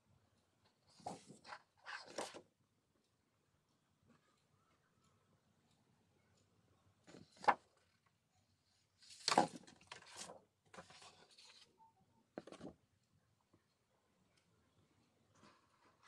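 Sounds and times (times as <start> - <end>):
paper sheets rustling: 0.9 - 2.4, 7.1 - 7.6, 9.0 - 11.6.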